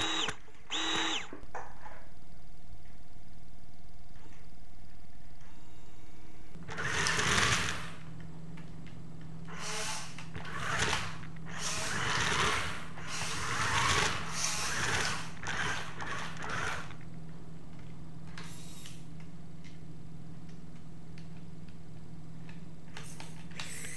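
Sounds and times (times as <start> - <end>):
small electric motors whirring: 0.0 - 1.4, 6.6 - 8.0, 9.5 - 17.0
steady low hum: 0.0 - 23.9.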